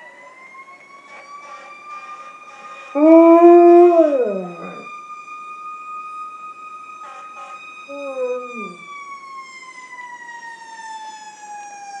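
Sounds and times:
fire truck siren: 0.0s - 12.0s
dog howling: 3.0s - 4.8s, 7.9s - 8.9s.

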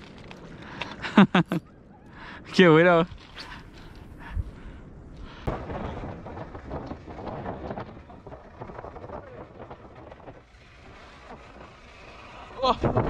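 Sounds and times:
wind buffeting microphone: 2.5s - 13.0s.

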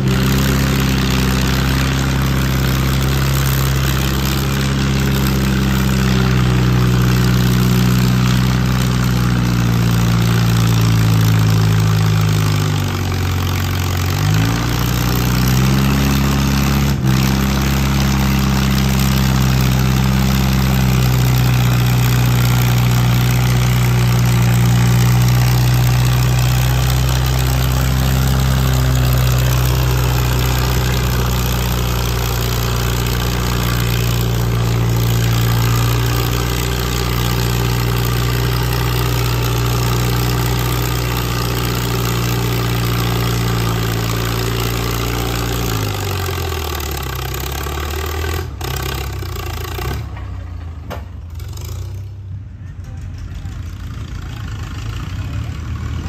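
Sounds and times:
tractor engine under load: 0.0s - 56.0s.

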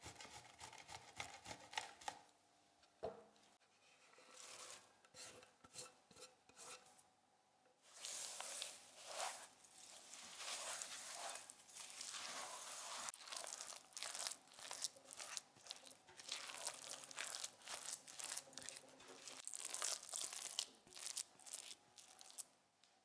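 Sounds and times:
spatula scraping glass bowl: 4.0s - 6.9s, 8.0s - 14.2s.

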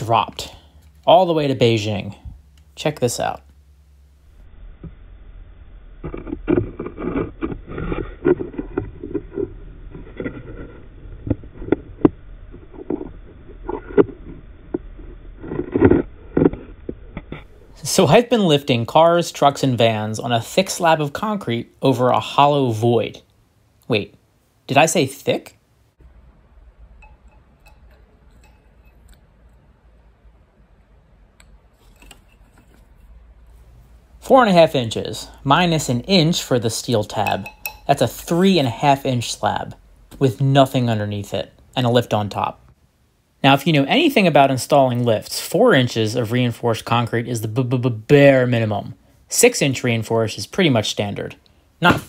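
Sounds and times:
low steady hum: 0.0s - 52.0s
probe scraping and knocking on concrete: 6.0s - 18.2s, 27.0s - 29.6s, 31.4s - 34.0s, 35.7s - 38.4s
steel rod tapping metal plate: 27.0s - 29.6s, 37.1s - 38.1s.

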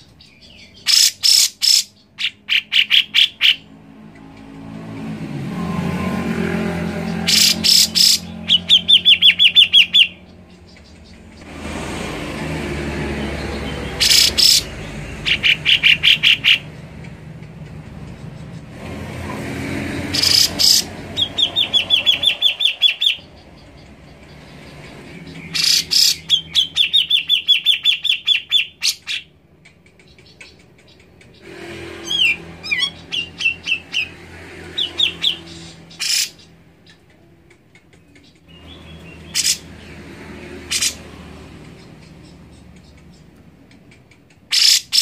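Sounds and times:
bird calling with sharp notes and trill: 0.0s - 11.5s, 13.1s - 18.8s, 19.9s - 45.0s.

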